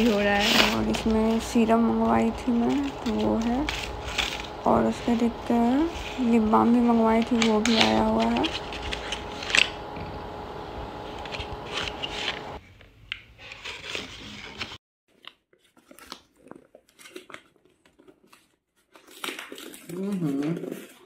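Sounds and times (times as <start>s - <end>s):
cardboard and paper rustling: 0.0s - 12.6s, 13.4s - 21.0s
steady hum: 0.0s - 12.6s.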